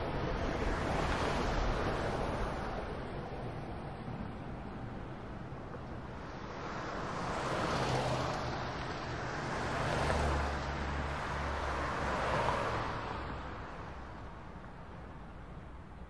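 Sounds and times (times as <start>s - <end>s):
vehicles passing: 0.0s - 16.0s.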